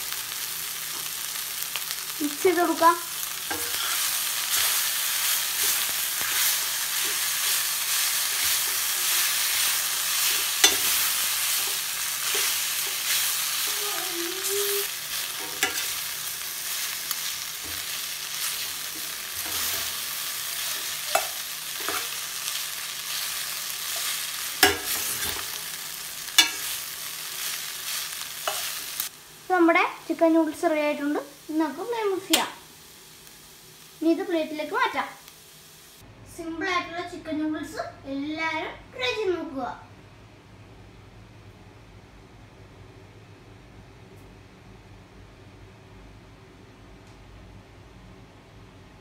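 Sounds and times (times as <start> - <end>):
noodles sizzling in a pan: 0.0 - 36.0.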